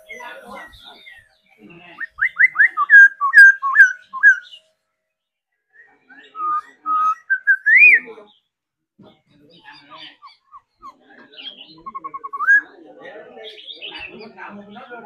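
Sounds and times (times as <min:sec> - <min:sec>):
bird whistling song: 0:01.9 - 0:04.6, 0:05.7 - 0:08.3, 0:09.8 - 0:12.8.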